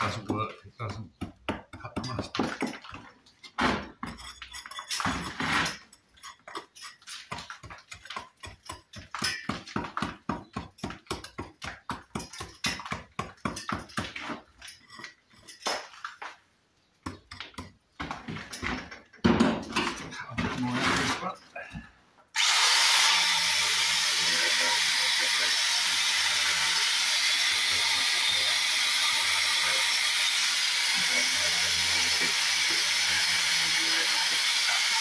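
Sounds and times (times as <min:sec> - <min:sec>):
hammer striking brick: 0:00.0 - 0:02.8, 0:06.6 - 0:14.2.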